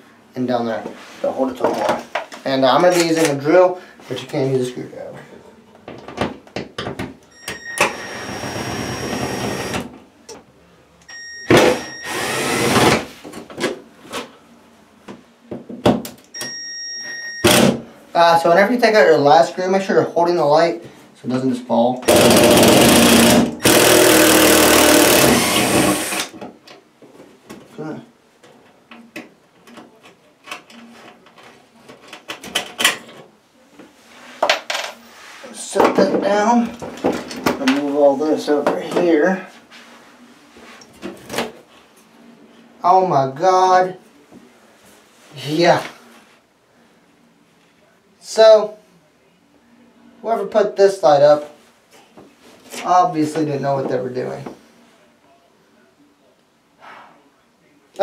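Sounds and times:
cordless drill whining: 0:07.5 - 0:09.9, 0:11.5 - 0:13.1, 0:22.1 - 0:26.4.

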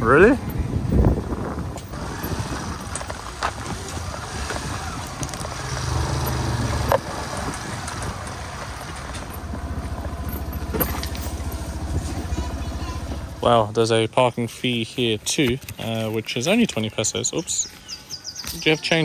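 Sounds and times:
scooter engine running: 0:00.1 - 0:13.9.

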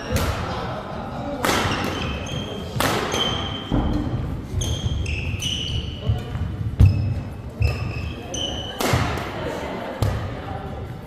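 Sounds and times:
sharp echoing impacts: 0:01.4 - 0:07.3
shoes squeaking on court floor: 0:01.6 - 0:08.9.

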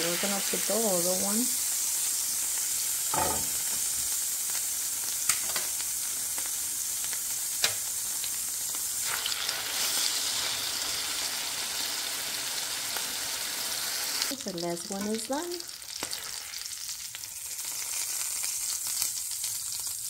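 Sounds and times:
fat sizzling in a skillet: 0:00.0 - 0:20.0.

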